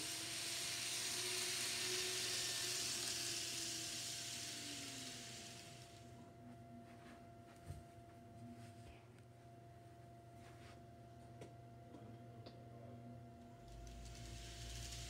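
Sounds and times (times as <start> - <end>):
model train passing: 0.0 - 6.2, 13.6 - 15.0
faint motor whine: 0.0 - 15.0
faint steady hum: 0.0 - 15.0.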